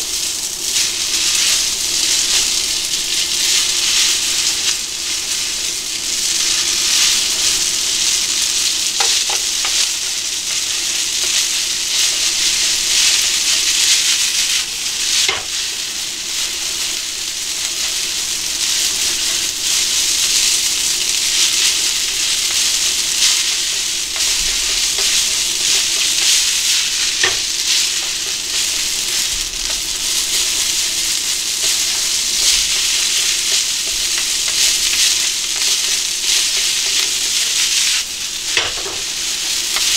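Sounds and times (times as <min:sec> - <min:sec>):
spaghetti sizzling in frying pan: 0:00.0 - 0:39.9
chopsticks clicking against pan: 0:09.0 - 0:09.9.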